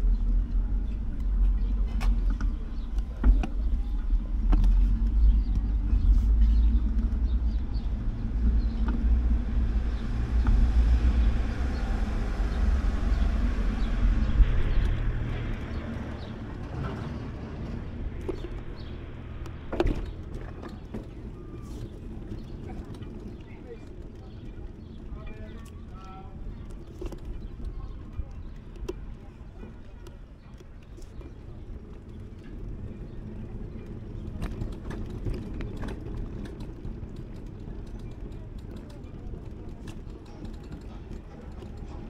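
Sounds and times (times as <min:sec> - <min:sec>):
low rumble: 0:00.0 - 0:29.6.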